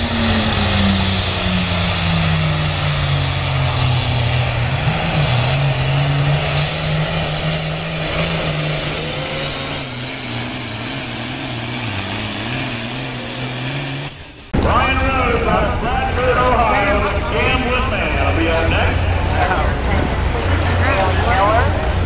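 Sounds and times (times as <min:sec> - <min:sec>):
diesel engine running flat out: 0:00.0 - 0:22.0.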